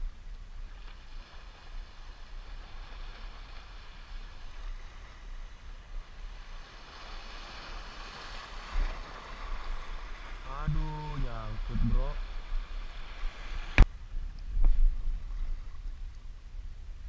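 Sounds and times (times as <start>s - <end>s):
wind rumble on microphone: 0.0s - 17.0s
waves breaking on rocks: 0.8s - 13.8s.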